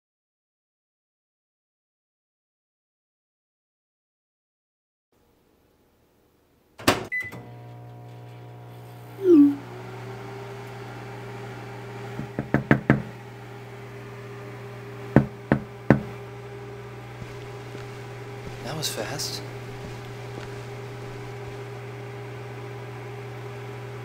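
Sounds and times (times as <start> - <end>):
microwave humming: 6.8 - 24.0
loud falling tone: 9.2 - 9.6.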